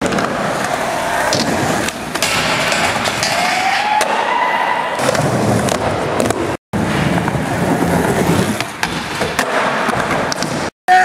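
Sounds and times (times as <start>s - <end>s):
skateboard trucks grinding: 0.0s - 4.1s, 4.9s - 10.6s
skateboard wheels rolling on concrete: 0.0s - 10.7s
skateboard screech: 2.8s - 5.6s.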